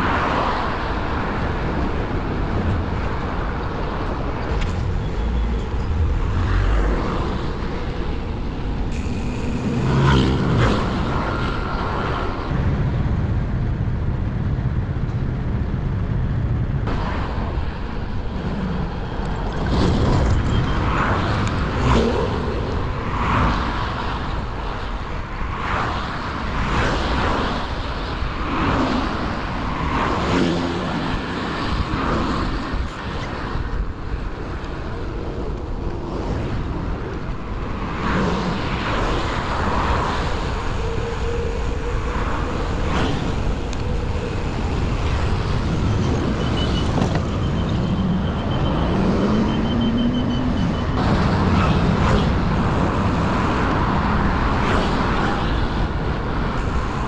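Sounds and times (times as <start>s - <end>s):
cars passing close by: 0.0s - 12.6s
wind rumbling on microphone: 0.0s - 57.0s.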